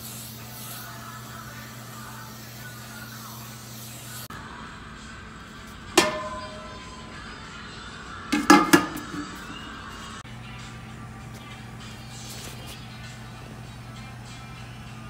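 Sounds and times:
metal pots clanking: 0:06.0 - 0:07.2, 0:08.4 - 0:09.6
metal clang with ringing tone: 0:06.0 - 0:07.3.

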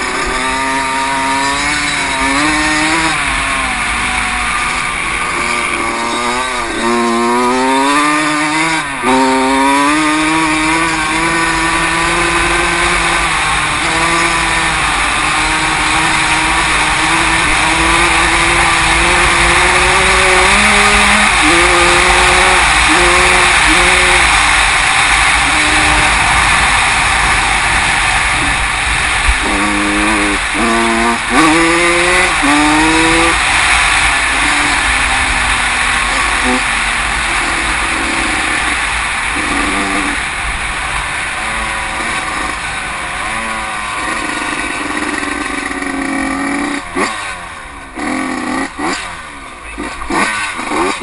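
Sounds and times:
motocross bike engine revving: 0:00.0 - 0:51.0
wind noise on microphone: 0:10.0 - 0:43.3.

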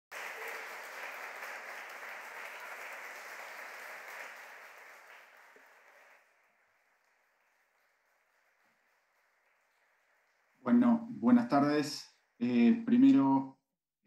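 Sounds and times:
crowd applauding: 0:00.1 - 0:12.5.

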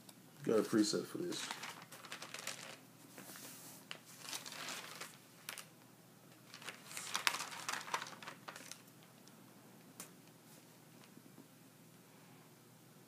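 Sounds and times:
rustling and crinkling handling noise: 0:00.8 - 0:09.3.

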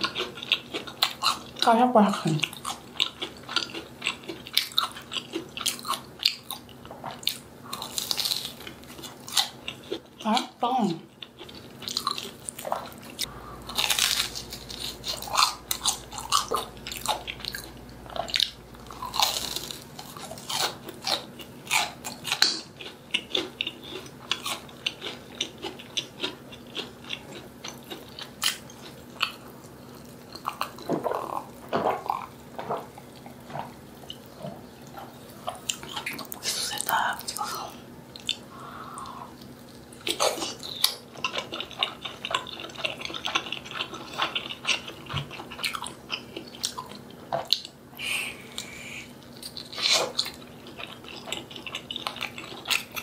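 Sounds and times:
chewing crispy fried food: 0:00.0 - 0:53.0.

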